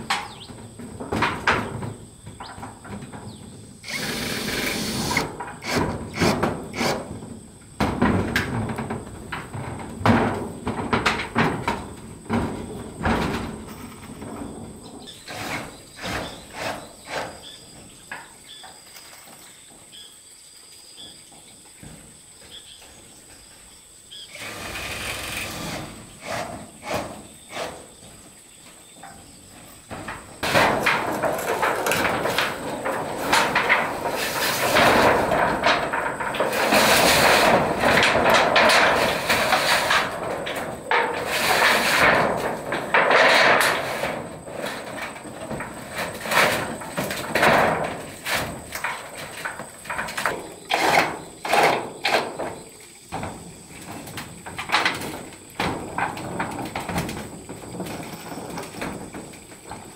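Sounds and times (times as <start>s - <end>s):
clanks on sheet metal: 0.0s - 18.7s, 28.9s - 59.9s
metal sheets scraping and rattling: 24.3s - 28.2s, 29.0s - 59.9s.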